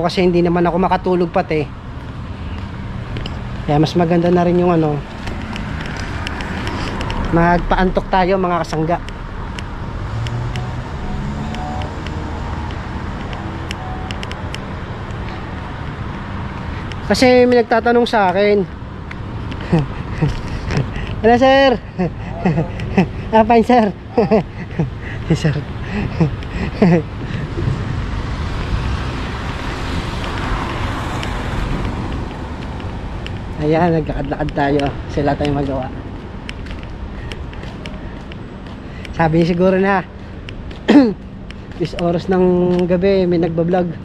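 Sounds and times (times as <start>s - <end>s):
car engines and tyres humming: 0.0s - 44.0s
vehicle passing: 1.0s - 44.0s.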